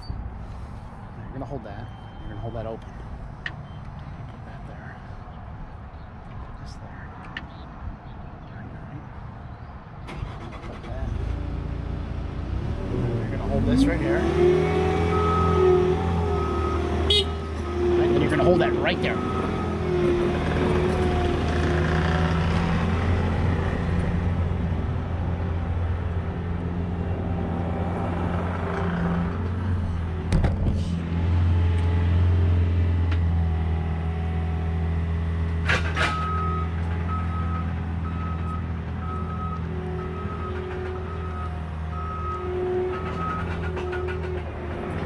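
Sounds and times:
high beeps: 1.8s - 3.0s.

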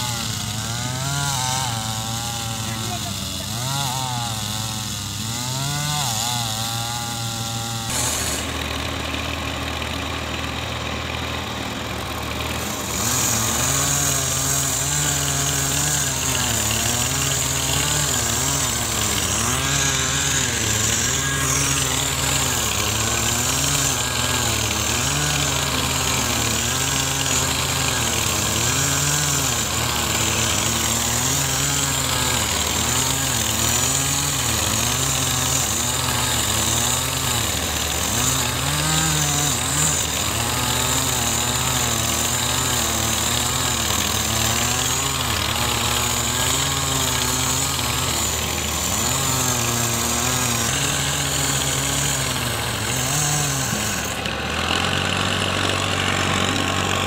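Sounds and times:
chainsaw cutting into tree trunk: 0.0s - 57.0s.

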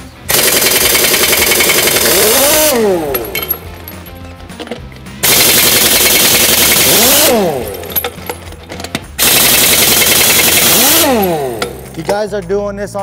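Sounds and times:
wrench whine spinning free: 0.3s - 3.6s, 5.2s - 8.5s, 9.2s - 12.0s
pneumatic impact wrench hammering: 0.3s - 4.0s, 4.6s - 12.2s
metal clinks: 2.6s - 5.1s, 7.6s - 9.2s, 11.0s - 12.6s.

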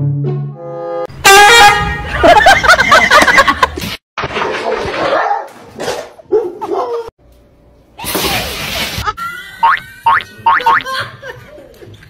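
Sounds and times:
dog barking and yelping: 5.0s - 7.1s.

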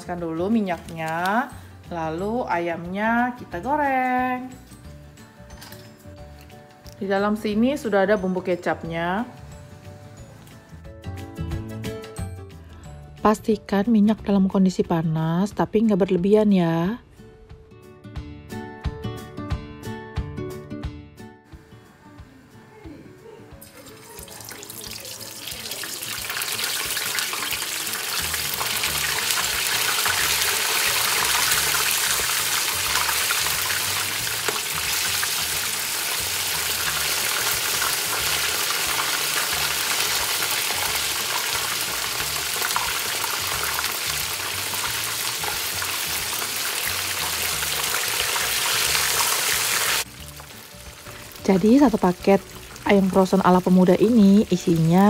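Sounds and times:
chicken sizzling in hot oil: 23.6s - 55.0s.

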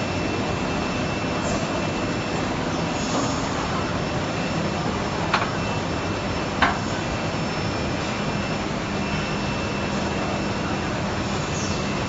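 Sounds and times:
machine drone with low hum: 0.0s - 12.0s.

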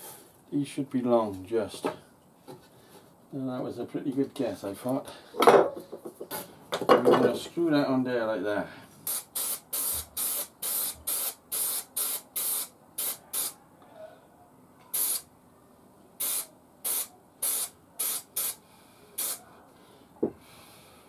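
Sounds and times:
aerosol spray hissing bursts: 9.0s - 13.6s, 14.9s - 15.3s, 16.2s - 18.6s, 19.2s - 19.4s.

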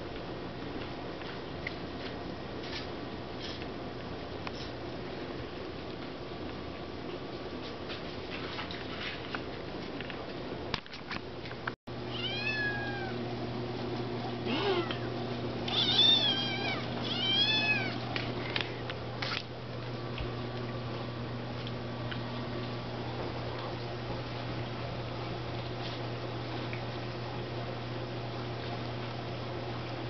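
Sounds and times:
kitten meowing: 12.1s - 13.1s, 15.7s - 18.0s.

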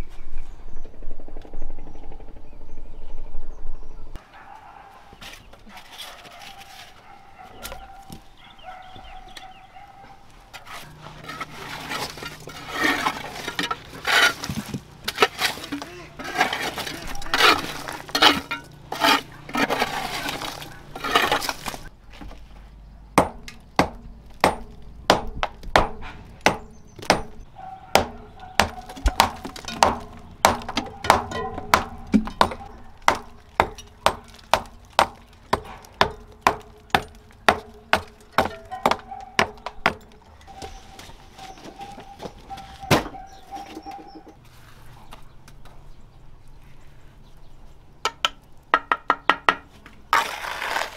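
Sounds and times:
hammer scraping out debris: 10.6s - 21.9s
hammer chipping cement off brick: 23.2s - 40.1s.

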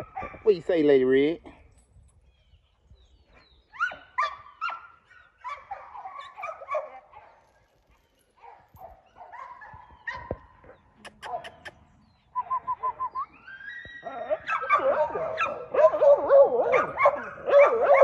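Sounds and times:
puppy yips: 12.4s - 15.9s
puppy whining and yelping: 12.5s - 15.6s.

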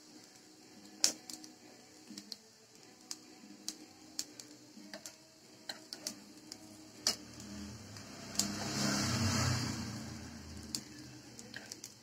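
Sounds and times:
cutlets frying in oil: 0.0s - 12.0s
oil crackling and popping: 0.0s - 12.0s
rush of noise: 7.4s - 10.7s.

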